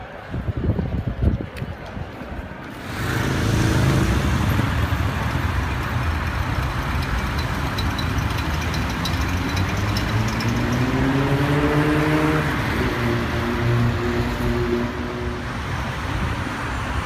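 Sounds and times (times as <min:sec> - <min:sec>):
cars and vans passing: 0:00.0 - 0:17.0
engine revving up: 0:08.8 - 0:15.0.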